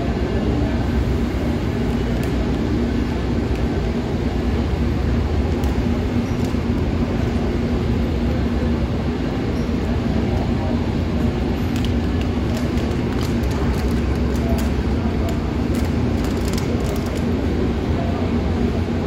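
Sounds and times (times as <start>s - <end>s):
train rumble and hum: 0.0s - 19.0s.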